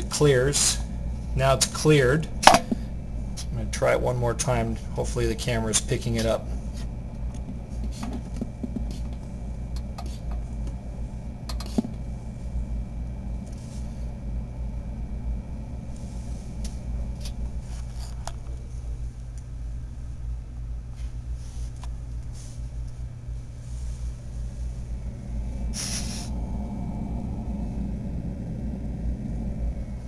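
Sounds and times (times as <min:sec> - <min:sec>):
cooling fan humming: 0:00.0 - 0:30.0
burst of hiss: 0:25.7 - 0:26.4.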